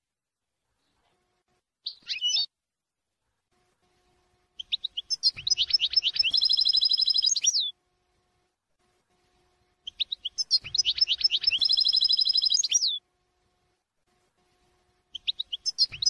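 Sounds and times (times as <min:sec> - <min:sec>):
goldfinch singing: 0:01.8 - 0:02.5, 0:04.6 - 0:07.7, 0:09.8 - 0:13.0, 0:15.1 - 0:16.0.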